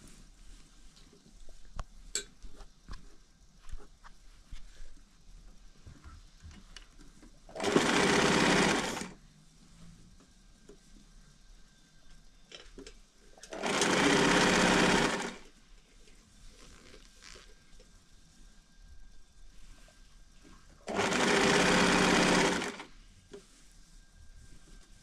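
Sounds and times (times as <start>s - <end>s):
sewing machine stitching: 7.5s - 9.2s, 13.4s - 15.5s, 20.8s - 22.9s.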